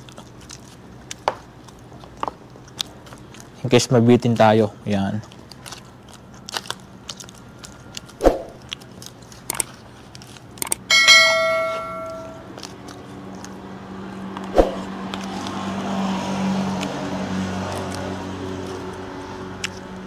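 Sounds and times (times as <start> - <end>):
bright bell chime: 10.9 - 12.5
low hum: 10.9 - 12.6.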